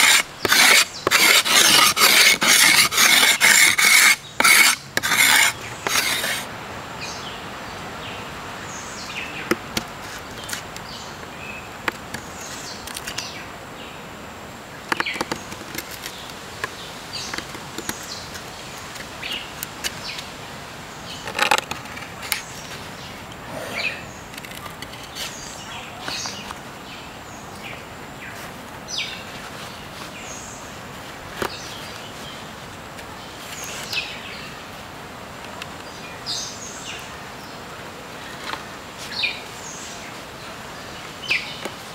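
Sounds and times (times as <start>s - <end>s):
knife cutting bamboo: 0.0s - 6.5s.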